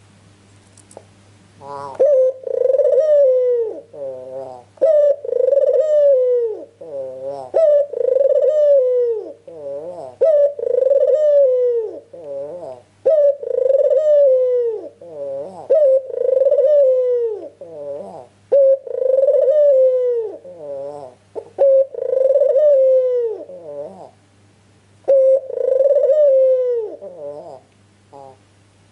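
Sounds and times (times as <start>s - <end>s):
dove cooing: 1.6s - 24.2s, 25.0s - 28.5s.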